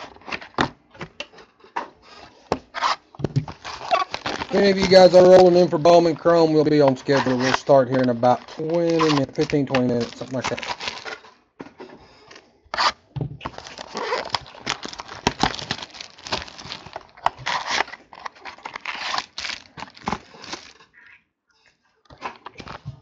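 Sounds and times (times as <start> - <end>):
packaging tearing and crinkling: 2.8 - 11.3, 12.8 - 20.9.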